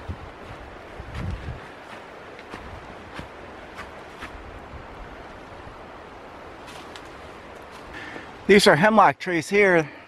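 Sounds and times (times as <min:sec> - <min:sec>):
wind buffeting microphone: 0:00.0 - 0:07.6.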